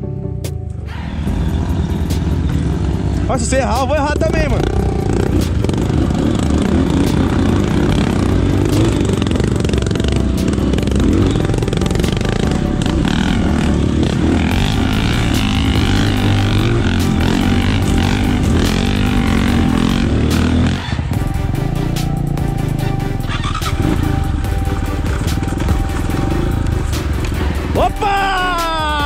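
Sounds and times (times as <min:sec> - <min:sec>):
motorcycle engine running: 0:01.1 - 0:29.0.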